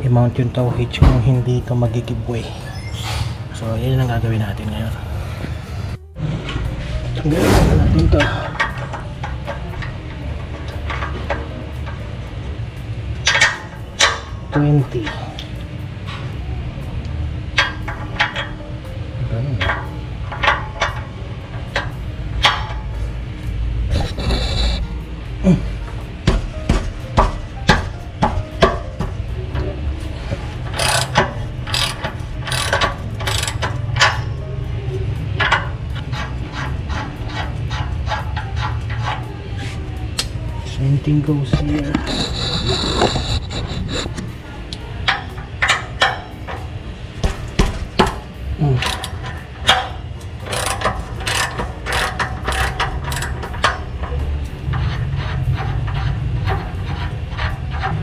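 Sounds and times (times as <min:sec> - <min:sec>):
ratchet wrench clicking: 0:30.6 - 0:34.3, 0:48.8 - 0:57.9.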